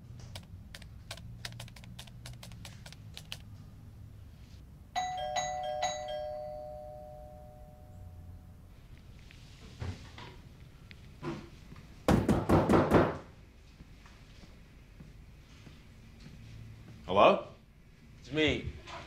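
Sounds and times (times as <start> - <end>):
typing on laptop keyboard: 0.2 - 3.5
two-note doorbell chime: 5.0 - 8.4.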